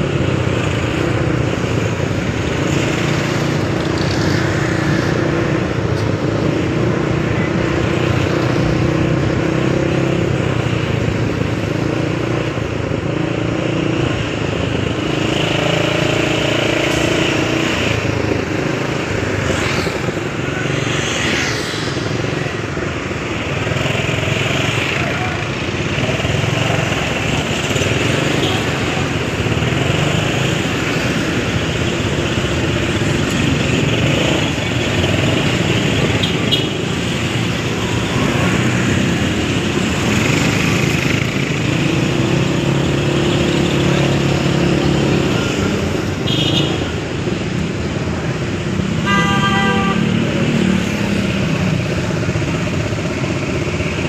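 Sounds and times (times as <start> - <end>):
traffic engines running: 0.0 - 54.0
vehicle horn toots: 49.0 - 50.2.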